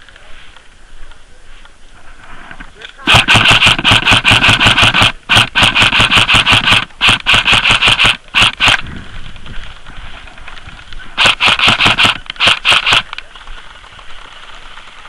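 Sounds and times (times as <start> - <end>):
airsoft rifle full-auto bursts: 3.0 - 8.9, 11.2 - 13.6.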